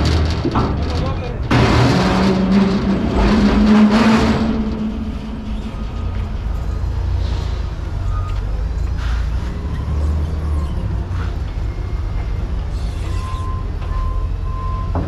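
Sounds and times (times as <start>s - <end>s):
truck engine rumble: 0.0s - 15.0s
loud rushing noise: 1.5s - 8.2s.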